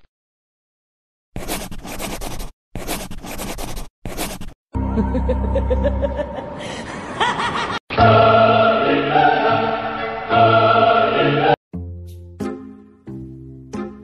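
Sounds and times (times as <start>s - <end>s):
choir singing held chord: 7.9s - 11.6s.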